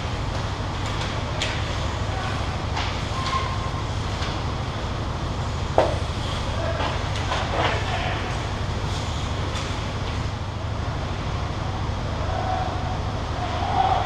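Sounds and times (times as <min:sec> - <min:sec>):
sharp hard knock: 0:05.8 - 0:06.0.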